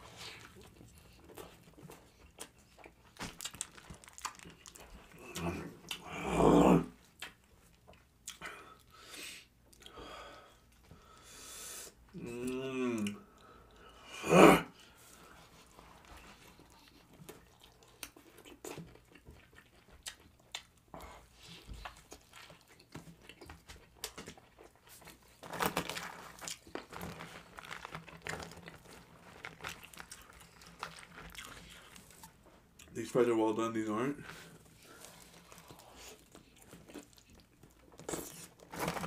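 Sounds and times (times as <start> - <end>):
chewing and wet mouth noises: 0.1 - 6.1, 7.0 - 9.0, 14.8 - 25.4, 26.3 - 33.0, 34.5 - 39.0.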